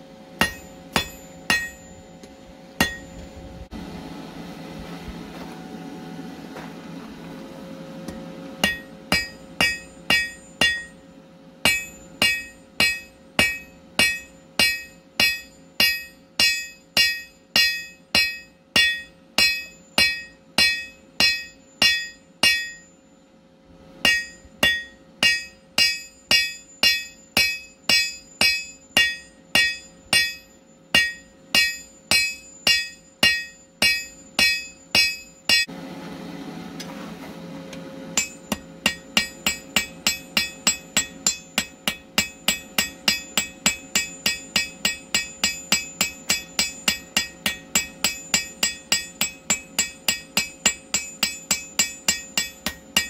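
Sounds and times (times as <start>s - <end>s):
low rushing hum: 0.0s - 53.0s
hammer striking metal on anvil: 0.4s - 3.3s, 8.1s - 23.0s, 24.0s - 35.7s, 38.2s - 53.0s.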